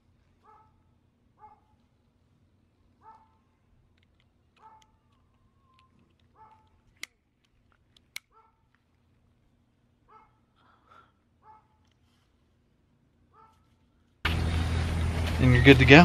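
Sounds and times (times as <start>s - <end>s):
faint dog barks: 0.4s - 1.8s, 3.0s - 3.5s, 4.6s - 5.1s, 6.3s - 6.8s, 8.3s - 8.7s, 10.0s - 11.9s, 13.3s - 13.8s
plastic buckle clicks: 3.9s - 9.0s.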